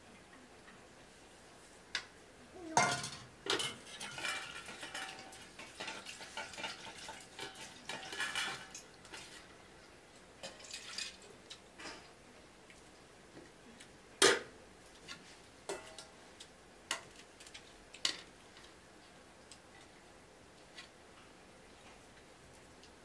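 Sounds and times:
steel bowls and spoons clinking: 2.8s - 9.4s, 10.4s - 11.2s, 15.7s - 16.1s.

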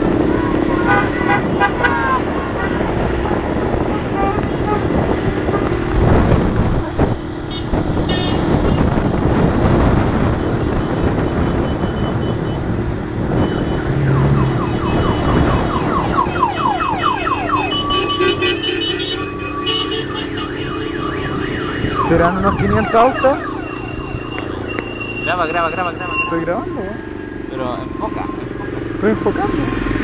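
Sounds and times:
road noise from cars: 0.0s - 30.0s
wind: 0.0s - 30.0s
electronic siren whooping: 13.3s - 29.9s.

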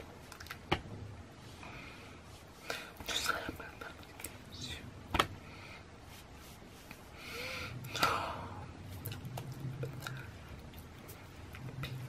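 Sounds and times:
hand slapping chest: 5.1s - 5.4s, 7.9s - 8.2s
breathy exhale: 7.2s - 8.6s.

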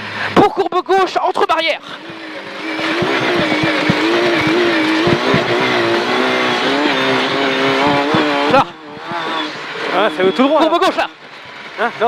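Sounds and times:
rally car engine running hard: 1.8s - 12.0s
sharp knocks: 2.8s - 6.1s, 7.7s - 9.2s.

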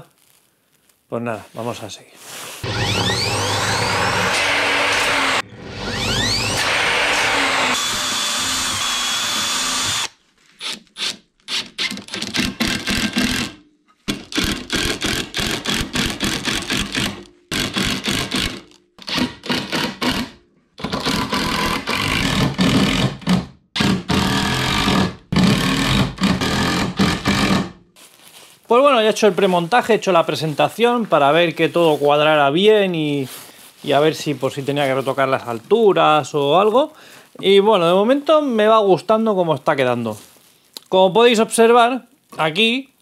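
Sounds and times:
cordless drill driving screws: 2.6s - 13.6s, 14.3s - 27.6s
steady tool noise: 2.6s - 27.7s.

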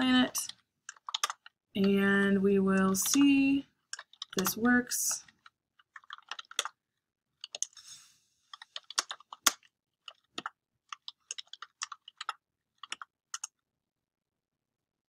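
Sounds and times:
keyboard typing clicks: 0.3s - 2.0s, 2.7s - 6.8s, 7.4s - 7.8s, 8.6s - 13.6s.

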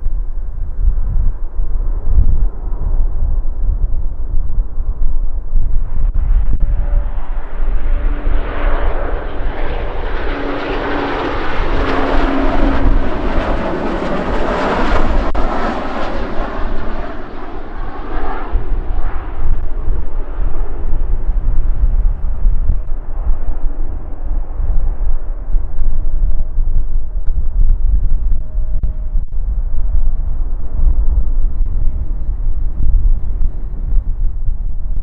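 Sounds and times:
wind rumble on microphone: 0.0s - 35.0s
jet airliner passing: 0.2s - 35.0s.

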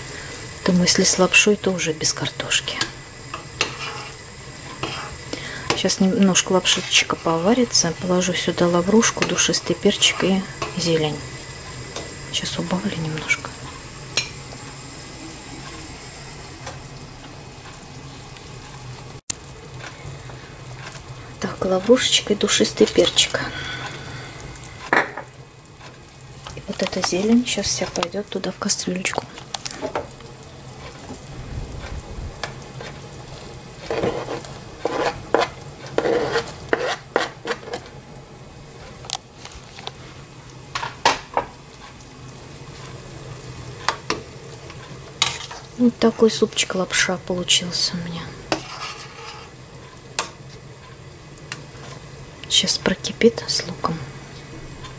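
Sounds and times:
soup boiling in pot: 0.0s - 54.9s
knife scraping cutting board: 3.6s - 4.2s, 33.8s - 37.8s, 48.6s - 49.5s.

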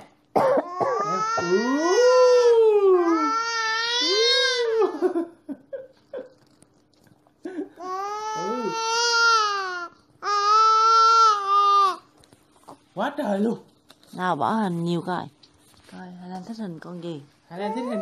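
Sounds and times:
baby crying: 0.5s - 5.2s, 7.8s - 12.1s, 17.5s - 18.0s.

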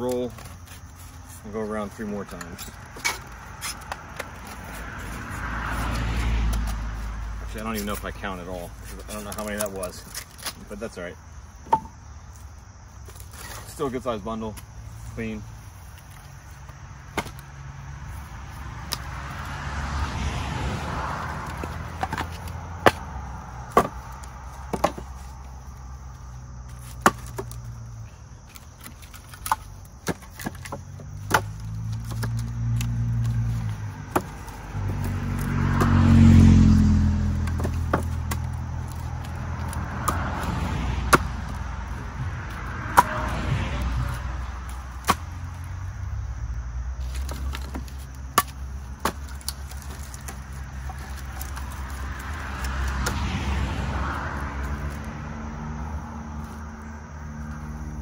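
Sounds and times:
vehicle passing rumble: 0.0s - 58.0s
firewood knocking and clacking: 11.6s - 12.0s.

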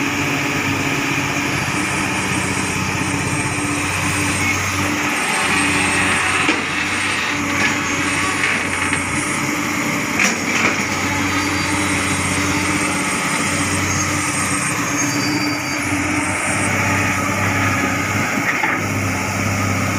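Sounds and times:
excavator diesel engine running: 0.0s - 19.9s.

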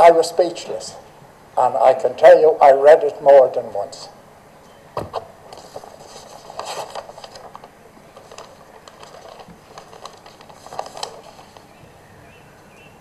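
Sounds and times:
low background hiss: 0.0s - 13.0s
paper rustling: 5.0s - 11.8s.

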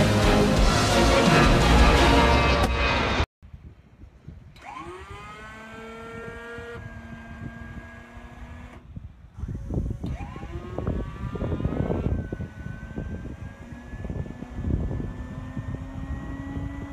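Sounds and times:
turbine spooling up whine: 9.6s - 16.9s.

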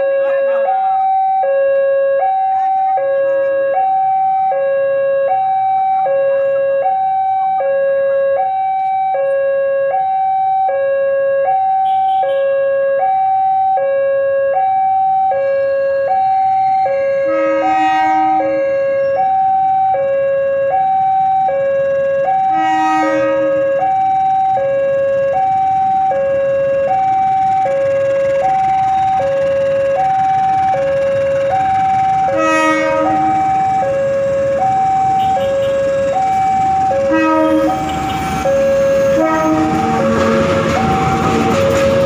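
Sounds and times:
level crossing two-tone alarm: 0.0s - 42.0s
brief horn-like tone: 37.1s - 40.0s.

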